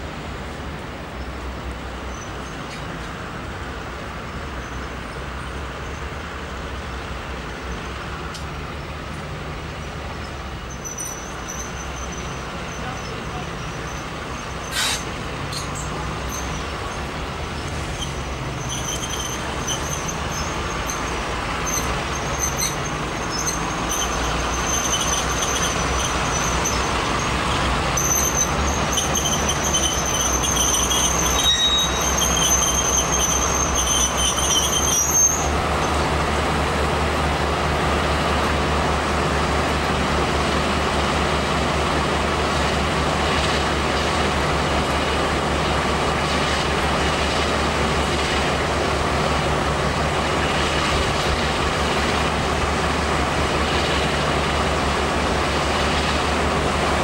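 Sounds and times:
diesel locomotive engines running: 0.0s - 57.0s.

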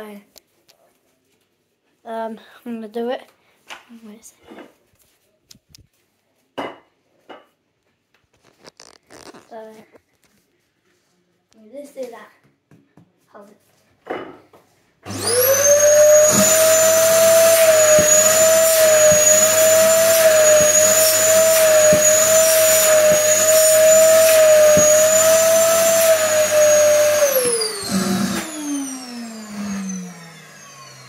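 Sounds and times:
vacuum cleaner motor whining: 15.1s - 31.0s.

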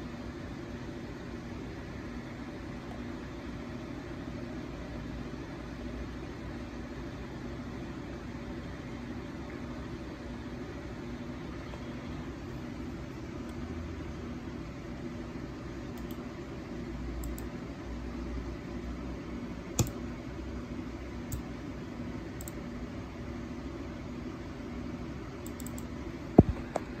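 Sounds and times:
low hum and hiss: 0.0s - 27.0s
computer mouse clicks: 15.9s - 16.2s, 17.2s - 17.5s, 19.8s - 20.0s, 21.3s - 21.5s, 22.4s - 22.6s, 25.4s - 26.9s
light clicks: 25.4s - 26.5s.

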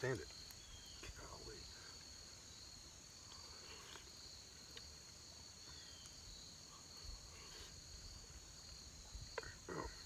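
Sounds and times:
crickets chirring: 0.0s - 10.0s.

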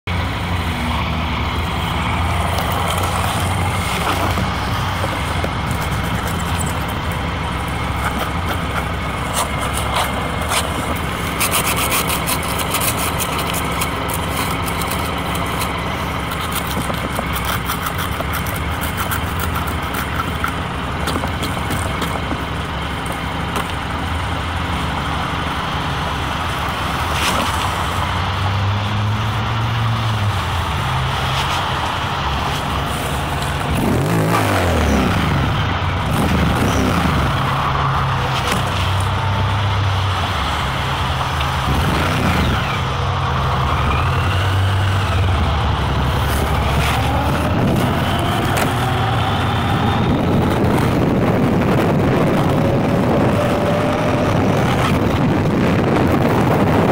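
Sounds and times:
small motorcycle engine running: 1.8s - 24.6s
camera mount rubbing and rattling: 2.3s - 22.4s
wind noise: 26.8s - 56.9s.

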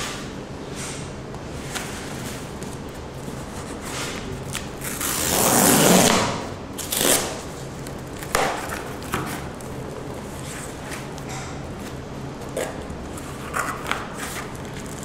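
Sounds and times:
cardboard tear strip ripping: 4.4s - 7.5s.

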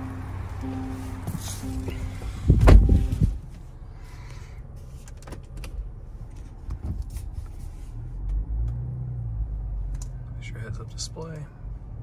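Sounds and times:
car door chime: 0.0s - 3.5s
car door slamming shut: 1.2s - 3.4s.

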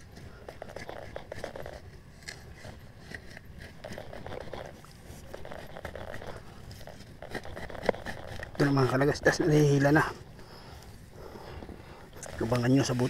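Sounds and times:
dry grass crackling and rustling: 12.2s - 13.0s.

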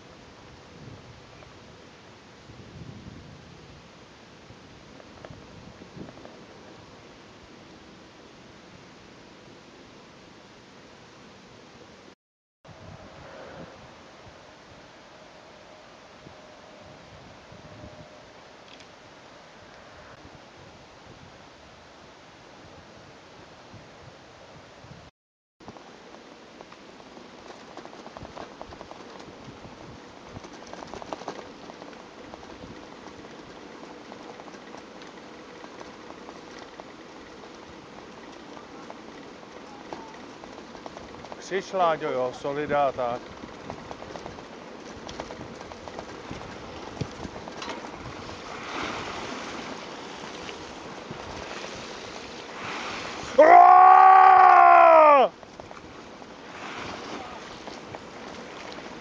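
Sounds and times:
wind and tyre noise: 0.0s - 12.1s, 12.7s - 59.0s
bicycle rolling over brick paving: 25.7s - 53.8s, 55.4s - 59.0s
handlebar bag rattling: 25.8s - 52.3s.

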